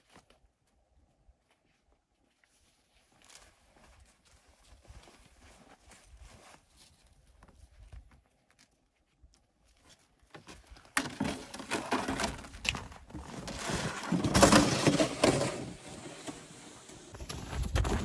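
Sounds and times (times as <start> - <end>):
plastic sled dragged on snow: 11.0 - 18.0.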